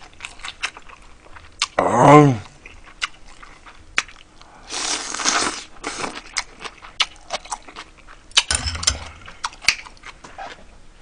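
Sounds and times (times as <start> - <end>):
man eating noodles: 4.7 - 6.4.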